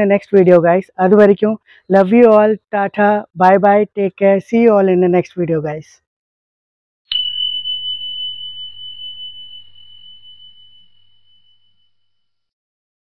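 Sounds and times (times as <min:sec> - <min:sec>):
high bell-like chime: 0:07.1 - 0:12.4.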